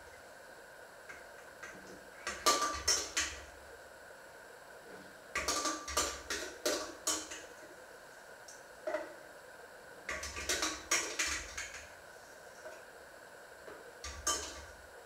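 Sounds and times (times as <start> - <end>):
dishes clinking in a sink: 14.1 - 14.7.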